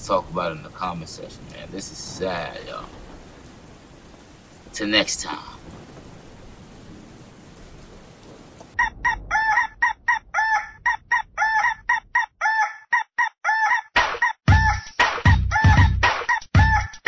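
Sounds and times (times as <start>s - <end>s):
rooster crowing and clucking: 8.6s - 14.8s
heavy bass beat: 14.5s - 17.0s.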